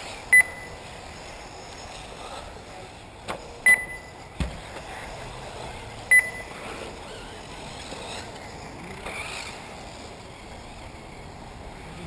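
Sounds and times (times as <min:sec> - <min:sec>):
faint rc cars running: 0:00.0 - 0:12.0.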